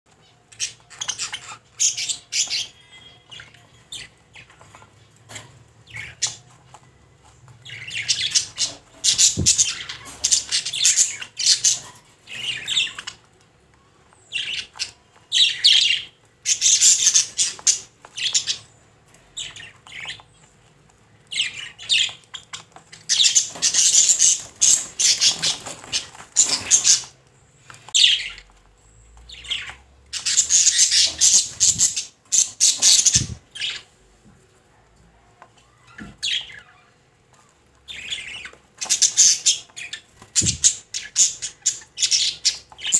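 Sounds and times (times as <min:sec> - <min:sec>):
budgerigar chattering and squawking: 0:21.4 - 0:27.2, 0:29.4 - 0:33.9, 0:37.9 - 0:42.9.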